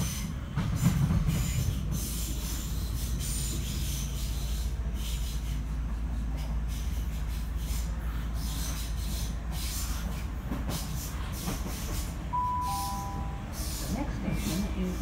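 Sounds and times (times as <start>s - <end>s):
rail and wheel noise: 0.0s - 15.0s
train rumbling on track: 0.0s - 15.0s
two-note falling chime: 12.4s - 13.5s.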